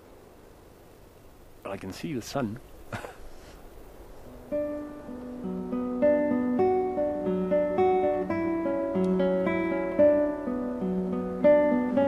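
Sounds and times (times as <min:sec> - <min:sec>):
plucked acoustic guitar melody: 0:04.3 - 0:12.0.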